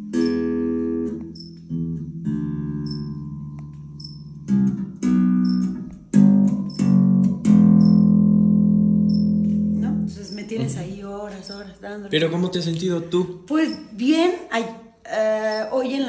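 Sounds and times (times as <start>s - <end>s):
electric bass notes plucked: 0.0s - 10.9s.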